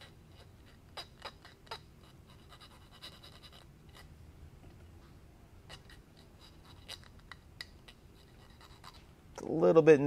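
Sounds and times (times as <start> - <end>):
applicator scratching screw threads: 0.0 - 4.2, 5.6 - 9.1.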